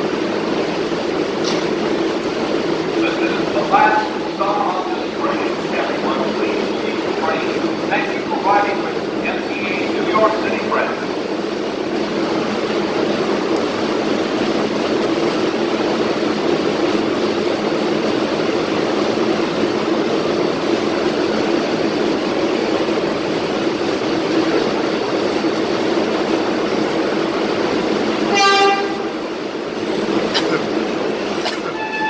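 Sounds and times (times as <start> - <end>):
subway train rumbling: 0.0 - 32.0
train horn toot: 28.3 - 29.2, 31.7 - 32.0.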